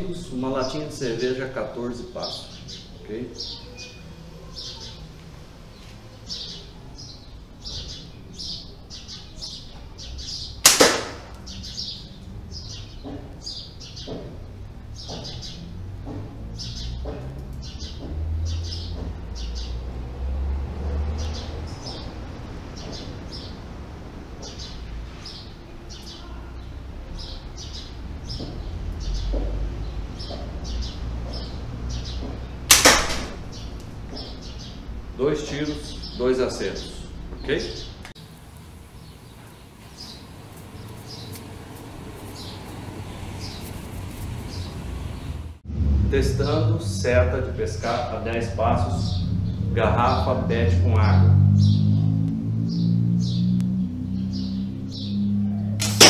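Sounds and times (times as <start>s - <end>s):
birds chirping: 0.0s - 56.0s
handling noise: 10.6s - 11.5s, 32.2s - 34.6s
slingshot rifle crack: 10.6s - 11.5s, 32.7s - 33.5s, 55.8s - 56.0s.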